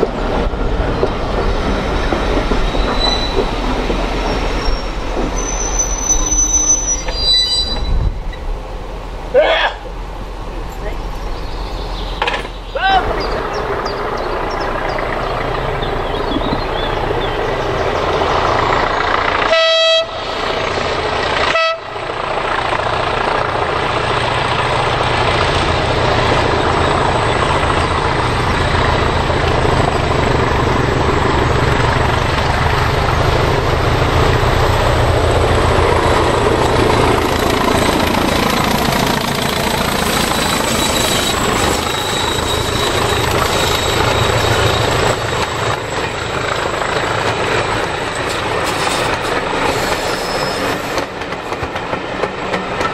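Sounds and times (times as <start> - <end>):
diesel locomotive engine throbbing: 0.0 - 52.9
locomotive horn blasts: 19.4 - 20.2, 21.5 - 22.0.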